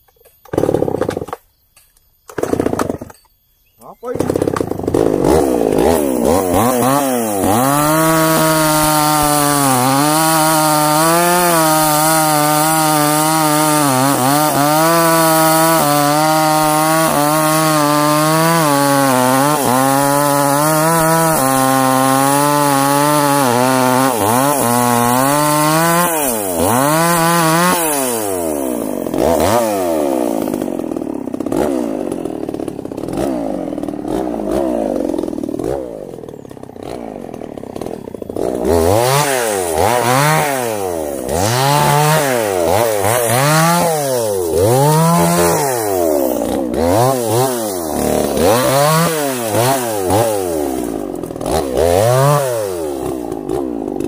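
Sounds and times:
chainsaw cutting and revving: 0.5s - 1.4s, 2.4s - 3.1s, 4.1s - 54.0s.

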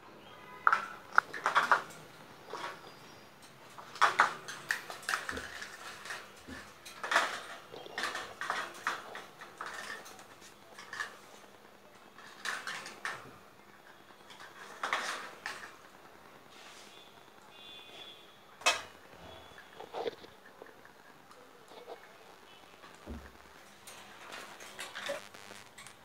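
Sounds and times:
beaks and claws clinking on wire: 0.6s - 16.0s.

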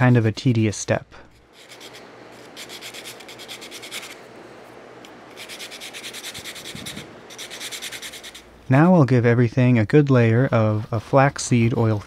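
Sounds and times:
wooden peg sanding on sandpaper: 1.3s - 4.2s, 5.3s - 8.5s, 9.2s - 12.0s.

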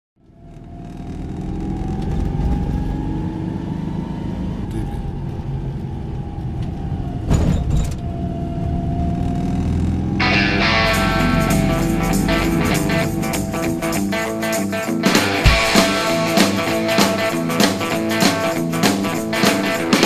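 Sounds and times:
guitar music: 10.2s - 20.0s
rush of noise: 10.2s - 20.0s.

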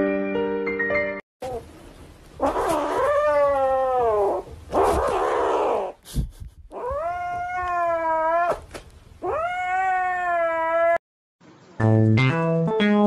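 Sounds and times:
kitten yowling: 2.4s - 6.0s, 6.7s - 11.0s.

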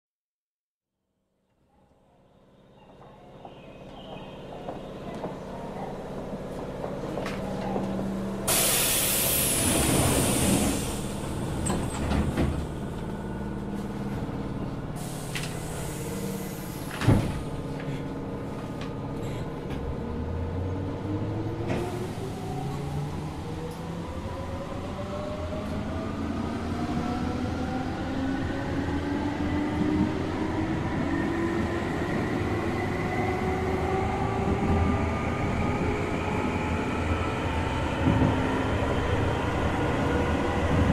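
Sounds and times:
compressed air hisses: 8.5s - 11.2s
train doors thudding shut: 8.5s - 12.8s, 16.6s - 17.6s.

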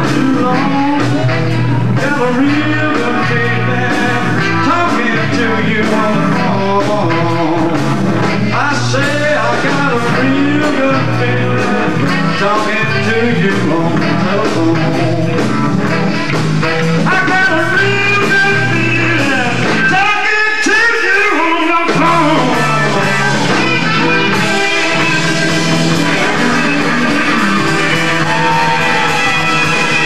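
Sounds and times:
rock blues band playing: 0.0s - 30.0s
electric guitar lead bending: 21.9s - 30.0s.

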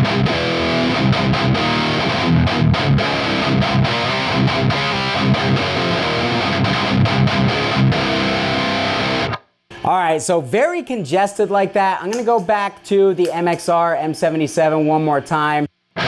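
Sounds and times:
distorted electric guitar riff: 0.0s - 10.2s.

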